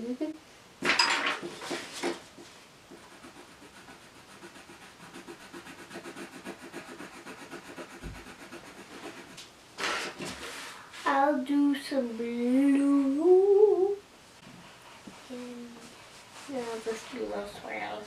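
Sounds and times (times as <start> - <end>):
pencil scratching on paper: 2.9 - 10.2, 14.4 - 18.0.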